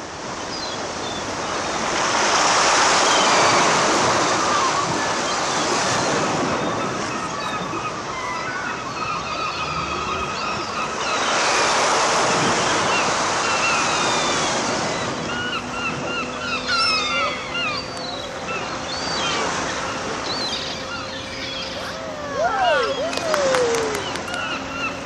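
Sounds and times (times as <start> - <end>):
distant surf: 0.0 - 25.0.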